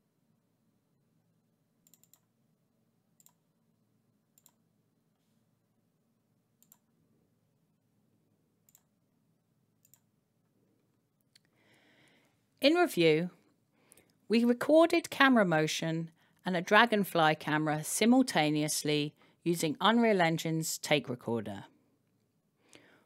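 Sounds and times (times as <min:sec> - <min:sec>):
computer mouse clicks: 0:01.8 - 0:02.3, 0:03.2 - 0:03.4, 0:04.4 - 0:04.6, 0:06.6 - 0:06.9, 0:08.6 - 0:08.9, 0:09.8 - 0:10.1.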